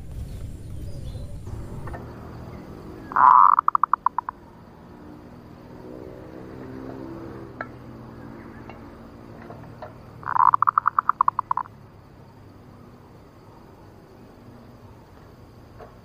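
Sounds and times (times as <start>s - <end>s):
rapid pulsed bird trill: 0.1s - 4.8s, 10.2s - 11.7s
dove cooing: 0.9s - 4.5s, 10.2s - 11.7s.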